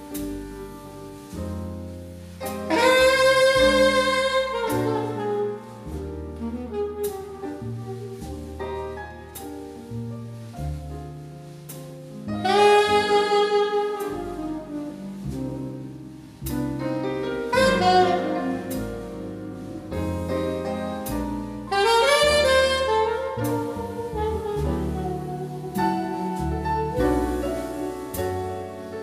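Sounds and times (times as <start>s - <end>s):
drums: 0.0s - 29.0s
piano: 0.0s - 29.0s
upright bass: 0.0s - 29.0s
alto saxophone long notes: 2.7s - 8.5s, 12.4s - 16.0s, 17.5s - 20.4s, 21.7s - 27.9s.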